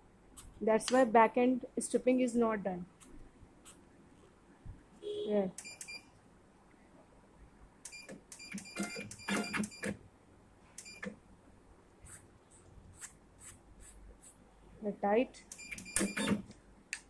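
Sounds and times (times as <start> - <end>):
machine whirs and clicks: 15.5 - 16.6.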